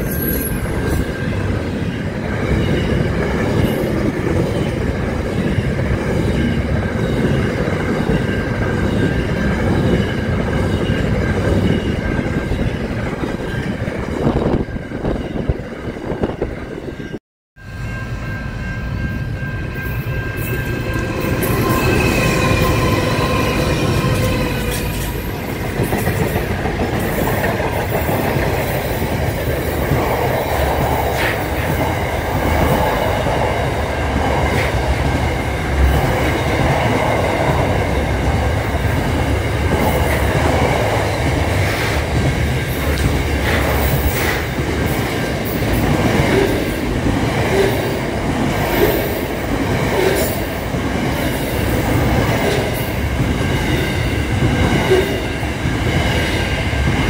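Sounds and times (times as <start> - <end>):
train wheels rumbling on rails: 0.0 - 17.2, 17.9 - 57.0
high steady squeal: 14.3 - 25.5
train wagons clanking: 19.7 - 57.0.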